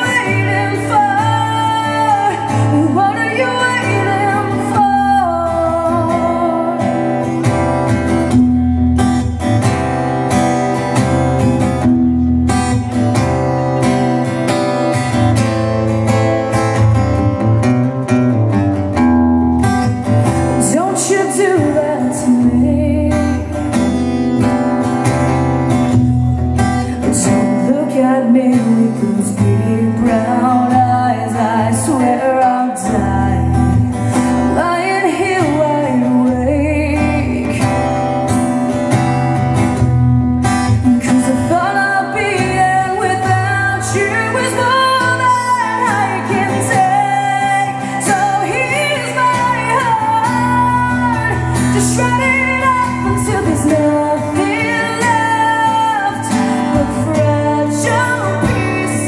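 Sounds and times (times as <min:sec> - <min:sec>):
woman singing: 0:00.0 - 0:09.8, 0:19.6 - 0:25.4, 0:26.6 - 0:38.7, 0:39.7 - 0:59.0
strummed acoustic guitar: 0:00.0 - 0:59.0.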